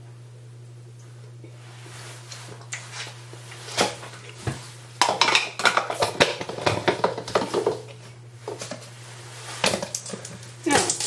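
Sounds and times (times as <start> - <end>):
dishes clinking and clattering: 5.0 - 7.9.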